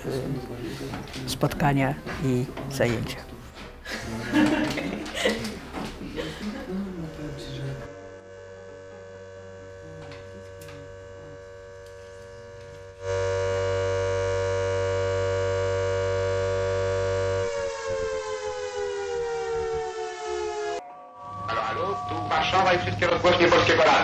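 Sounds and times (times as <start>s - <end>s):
air-raid siren wailing: 7.9s - 23.9s.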